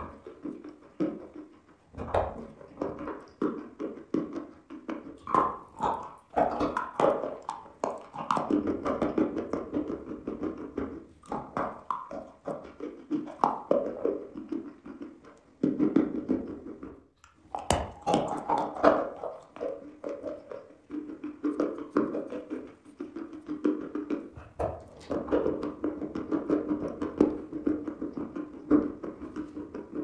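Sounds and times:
chalk being chewed: 0:05.0 - 0:09.9, 0:17.2 - 0:25.8.

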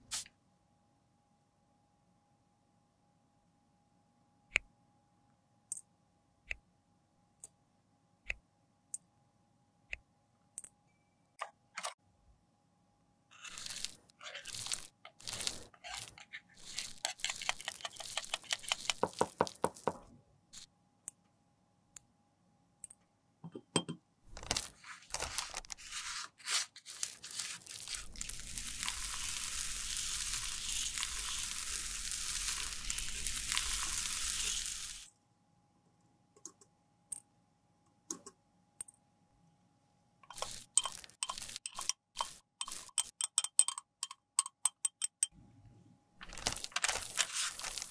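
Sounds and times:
metal spatula scraping powder: 0:13.3 - 0:19.8, 0:24.8 - 0:35.1, 0:40.2 - 0:43.2
brush swirling powder through sifter: 0:13.3 - 0:20.0, 0:24.7 - 0:35.1, 0:40.2 - 0:43.0, 0:46.5 - 0:47.9.

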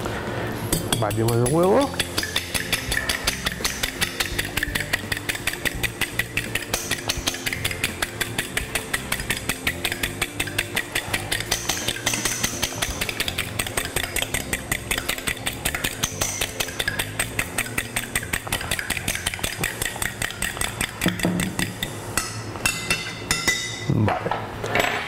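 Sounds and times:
fork clicking against bowl: 0:00.8 - 0:23.4.

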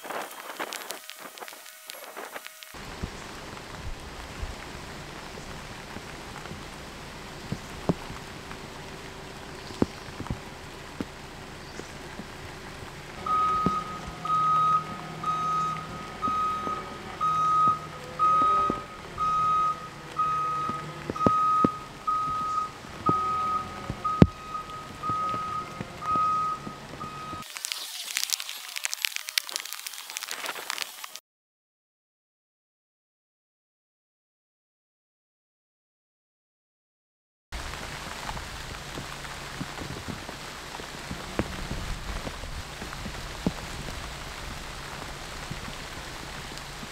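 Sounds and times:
telehandler engine running: 0:02.7 - 0:27.4
reversing alarm beeping: 0:13.2 - 0:27.5.

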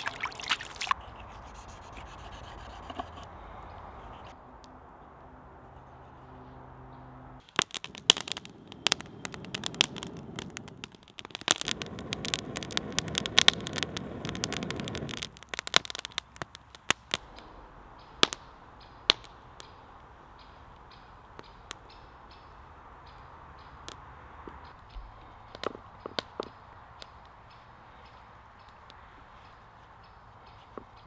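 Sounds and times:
campfire crackling and popping: 0:00.0 - 0:01.0, 0:07.4 - 0:29.6
rush of flames: 0:07.4 - 0:19.4.

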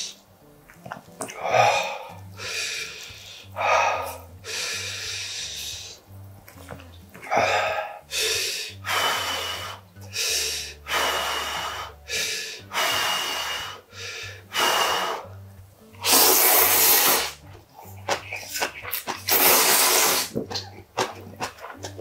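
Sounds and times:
man slurping noodles: 0:16.0 - 0:22.0.

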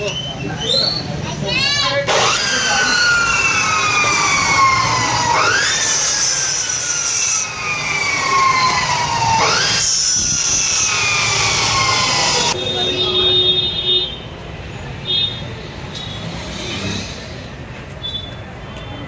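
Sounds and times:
electronic siren wailing: 0:02.2 - 0:09.9.

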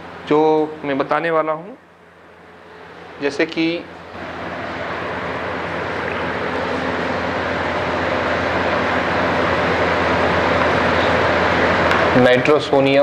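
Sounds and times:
steady rushing noise: 0:04.2 - 0:12.4.

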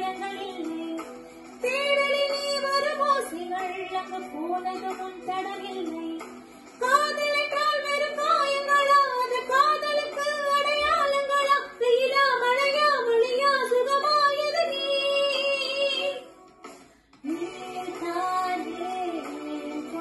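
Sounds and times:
woman singing solo: 0:17.2 - 0:20.0.

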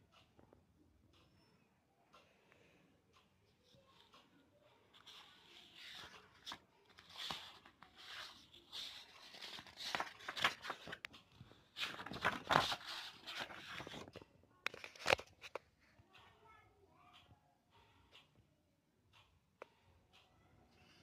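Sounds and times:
paper pages rustling: 0:04.9 - 0:15.6.

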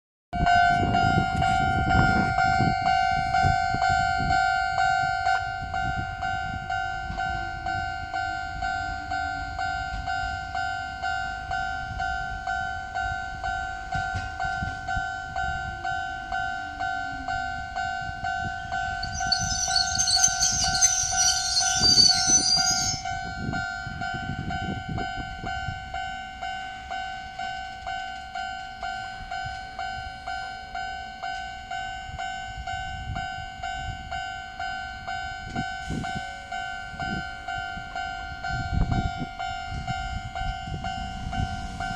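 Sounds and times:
electric train rumbling: 0:00.4 - 0:41.9
level crossing warning bell: 0:00.4 - 0:41.9
train brakes hissing and squealing: 0:19.0 - 0:23.2, 0:35.8 - 0:36.5.

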